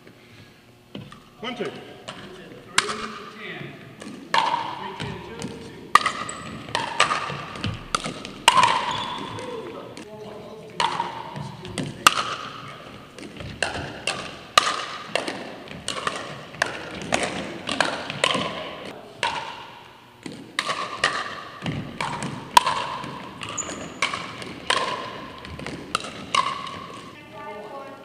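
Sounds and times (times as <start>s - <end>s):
paddles striking plastic ball: 4.0s - 9.0s, 13.2s - 18.6s, 20.2s - 27.0s
ball bouncing on hardwood floor: 4.0s - 9.6s, 13.2s - 18.6s, 20.2s - 27.1s.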